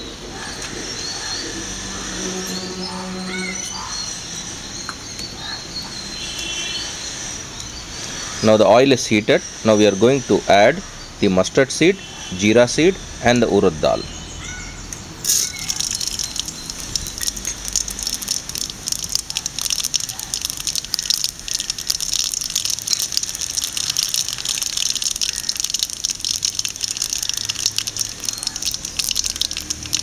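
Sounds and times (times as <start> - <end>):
seeds sizzling and popping in oil: 0.9 - 4.1, 15.2 - 30.0.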